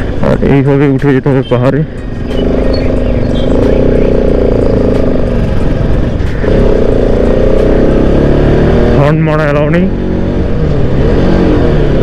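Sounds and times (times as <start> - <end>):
motorcycle engine pulling uphill: 2.1 - 12.0.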